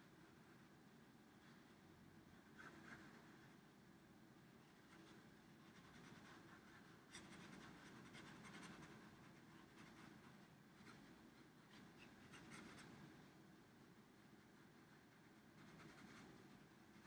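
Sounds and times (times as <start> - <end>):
marker scratching on paper: 11.7 - 12.9.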